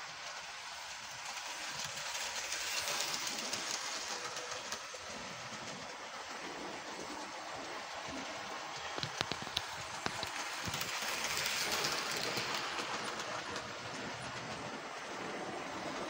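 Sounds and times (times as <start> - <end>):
model train wheels rolling: 0.0 - 16.0
wheels clicking over rail joints: 0.5 - 16.0.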